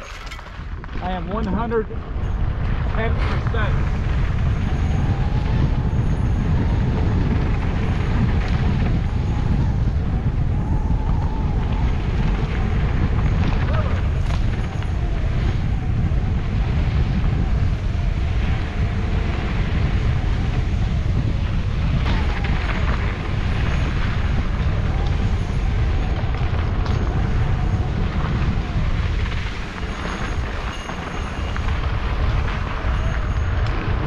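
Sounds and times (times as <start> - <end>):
tyres rumbling over dirt: 0.0 - 1.8
wind rushing on microphone: 0.0 - 34.0.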